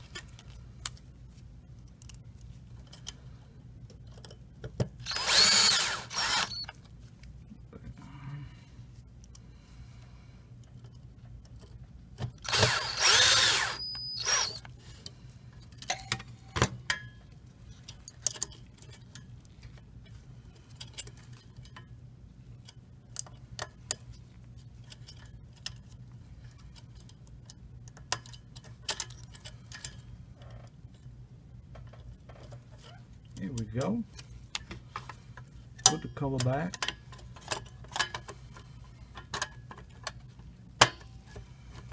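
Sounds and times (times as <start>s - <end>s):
electric screwdriver running: 5.0s - 6.7s, 12.4s - 14.6s.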